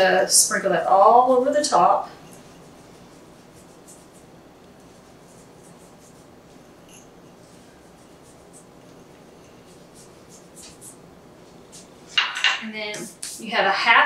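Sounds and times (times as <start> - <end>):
sugar sprinkling rustles: 1.8 - 12.3.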